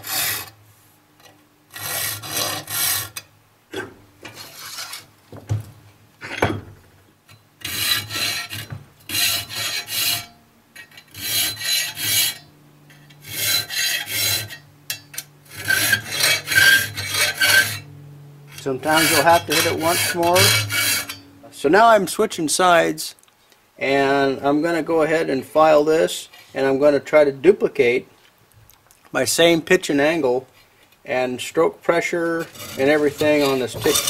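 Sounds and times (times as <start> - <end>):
file rasping on saw teeth: 1.8 - 3.2, 7.6 - 10.3, 11.1 - 12.4, 13.2 - 14.6, 15.5 - 17.9, 18.6 - 21.2, 32.5 - 34.0.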